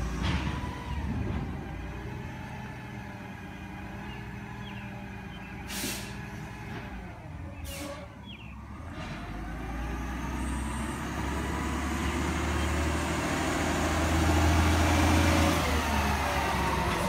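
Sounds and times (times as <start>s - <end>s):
truck diesel engine running: 0.0s - 17.0s
air brakes hissing: 5.7s - 6.2s, 7.6s - 8.2s.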